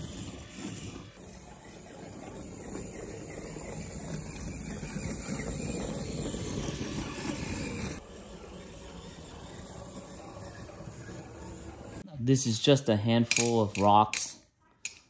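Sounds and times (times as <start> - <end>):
toy truck electric motor and gears: 0.0 - 12.0.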